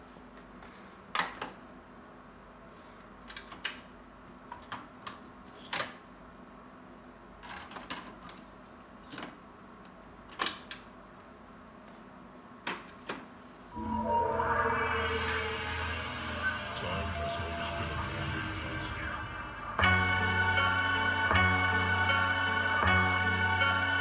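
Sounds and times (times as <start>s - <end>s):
faint steady hum: 8.2s - 24.0s.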